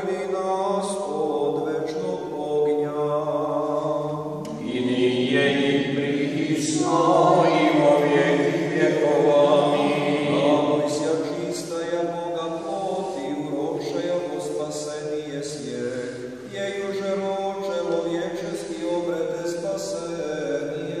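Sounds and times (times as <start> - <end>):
unaccompanied liturgical chant: 0.0 - 21.0.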